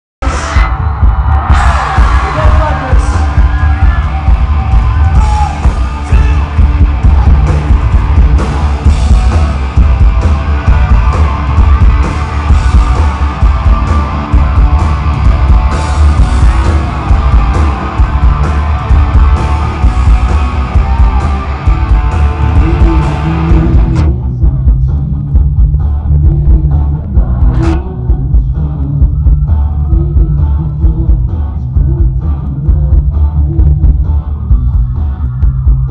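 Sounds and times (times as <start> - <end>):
bass guitar: 0.2 - 35.9
drums: 0.2 - 35.9
electric guitar: 0.2 - 35.9
person singing: 20.8 - 35.9.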